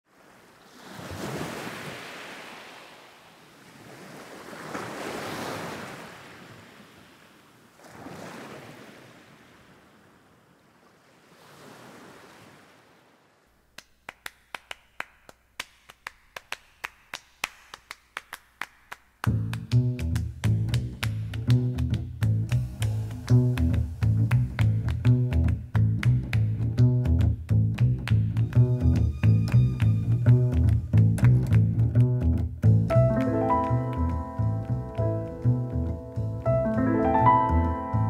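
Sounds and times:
sea waves breaking: 0.1s - 13.6s.

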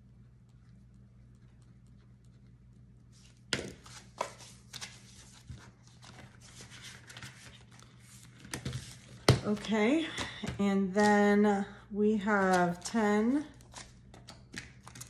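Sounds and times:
paper and plastic rustling: 3.8s - 10.4s.

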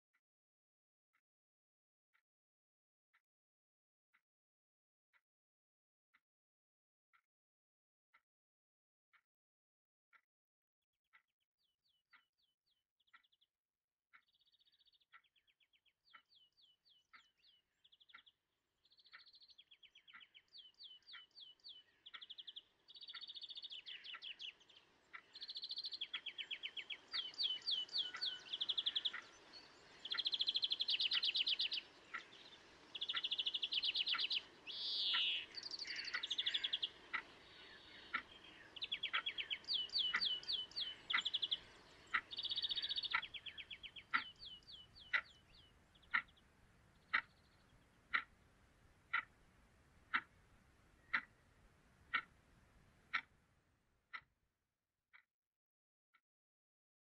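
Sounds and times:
birds chirping and trilling: 14.2s - 53.3s.

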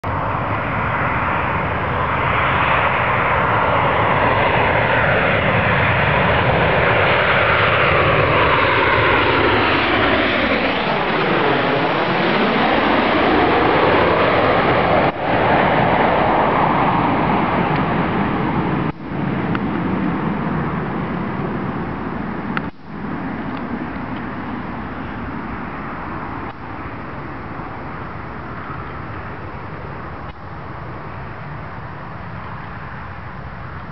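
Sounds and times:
jet airliner passing overhead: 0.0s - 33.9s.

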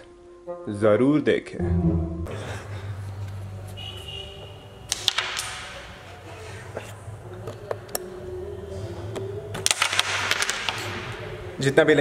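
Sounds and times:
wooden coins knocking together: 9.6s - 11.0s.

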